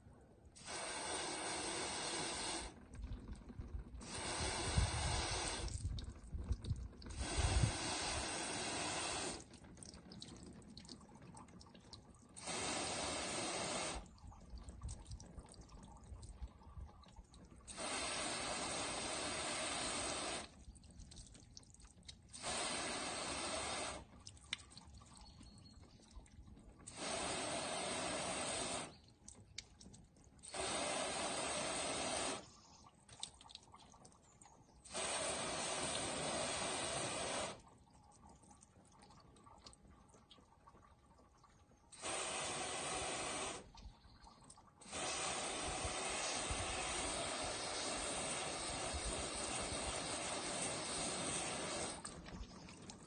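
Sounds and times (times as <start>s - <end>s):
water dripping and running off: 0.0s - 53.0s
hose nozzle spraying water: 0.6s - 10.3s, 12.4s - 14.1s, 17.7s - 20.6s, 22.0s - 24.6s, 26.8s - 29.0s, 30.4s - 32.6s, 34.9s - 37.6s, 42.0s - 43.8s, 44.8s - 53.0s.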